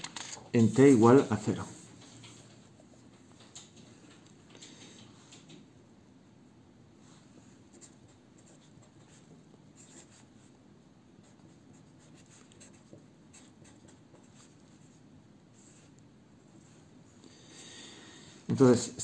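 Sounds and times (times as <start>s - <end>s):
pen scratching on paper: 7.7s - 10.5s, 11.2s - 15.0s.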